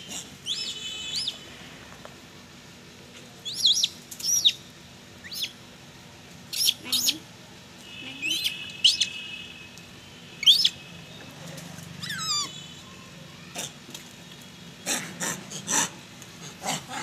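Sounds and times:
animal chirps: 0:00.1 - 0:01.4, 0:03.4 - 0:04.6, 0:05.2 - 0:05.6, 0:06.5 - 0:07.2, 0:08.2 - 0:09.2, 0:10.4 - 0:10.8, 0:12.0 - 0:12.6.

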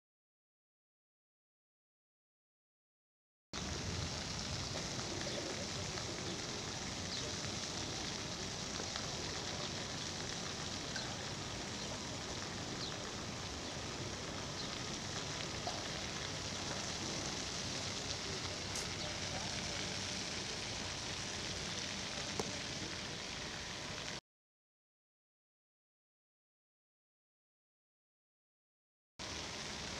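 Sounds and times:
outdoor background hiss: 0:03.6 - 0:24.2, 0:29.2 - 0:29.9.

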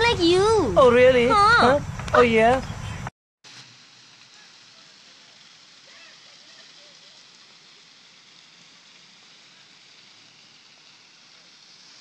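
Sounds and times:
fountain water splashing: 0:00.0 - 0:02.6, 0:03.5 - 0:12.0.

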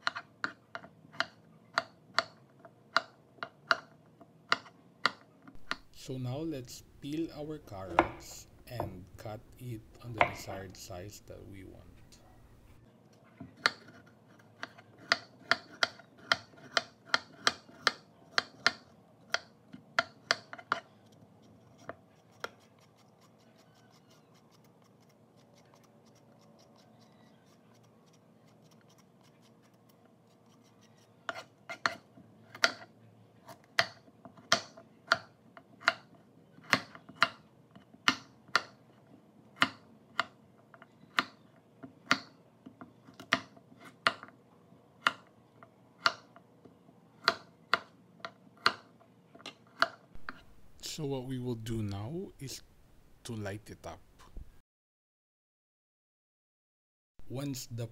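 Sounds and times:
knife chopping on wooden board: 0:04.5 - 0:05.9, 0:07.7 - 0:09.0, 0:10.0 - 0:10.7, 0:13.5 - 0:14.0, 0:14.6 - 0:20.8, 0:31.3 - 0:32.9, 0:33.8 - 0:37.4, 0:42.1 - 0:42.3, 0:47.2 - 0:47.9, 0:49.7 - 0:50.6.

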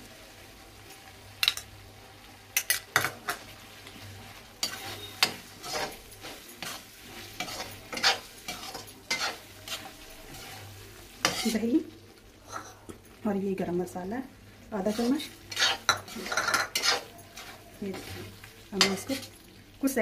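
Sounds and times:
faint sizzling in oil: 0:00.0 - 0:20.0
metal spoon scraping a pan: 0:04.6 - 0:11.7, 0:14.8 - 0:19.4.

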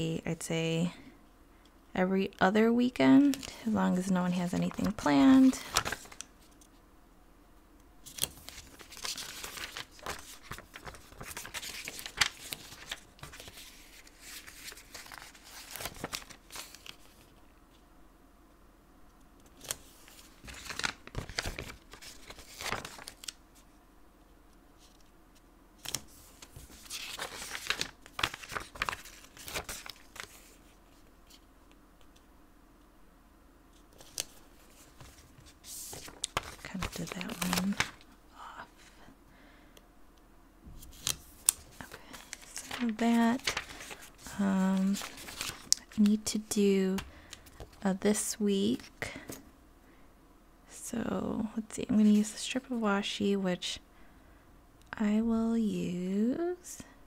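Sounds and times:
paper rustling: 0:03.2 - 0:06.6, 0:08.0 - 0:17.4, 0:19.4 - 0:23.4, 0:25.8 - 0:31.4, 0:33.8 - 0:38.1, 0:40.8 - 0:47.8.

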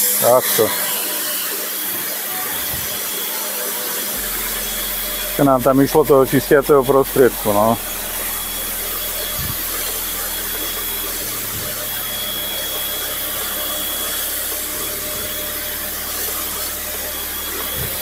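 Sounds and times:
pressure washer jet hissing: 0:00.0 - 0:18.0.

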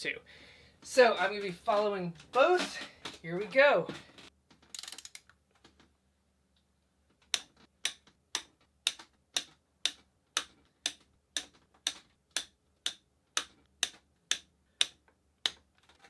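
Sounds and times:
clock-like ticking: 0:07.3 - 0:15.6.

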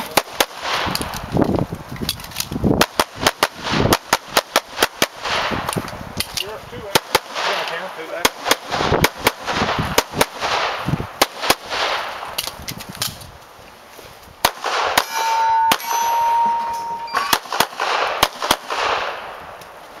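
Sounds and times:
steady metallic ring: 0:15.0 - 0:17.4
handgun shots: 0:17.1 - 0:19.2.

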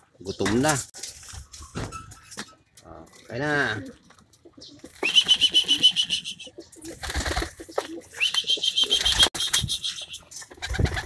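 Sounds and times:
pigeons flapping and scuffling: 0:06.8 - 0:11.0.

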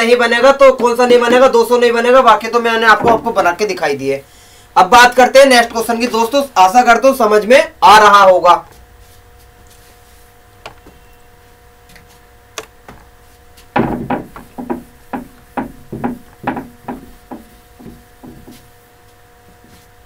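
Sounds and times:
whiteboard being wiped by hand: 0:08.7 - 0:10.4, 0:14.4 - 0:20.0.

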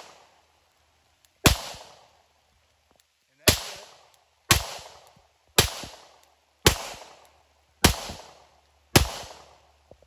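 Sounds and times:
pistol shots: 0:01.4 - 0:02.1, 0:03.4 - 0:09.6.

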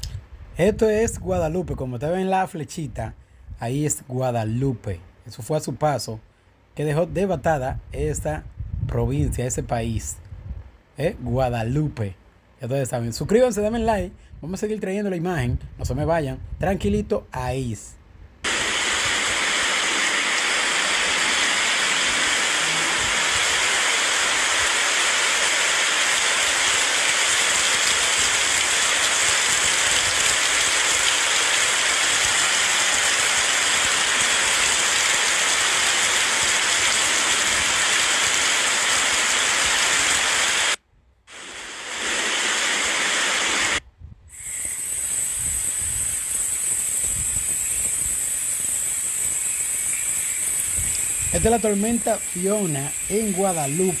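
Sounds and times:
steady rushing hiss: 0:18.4 - 0:54.0.

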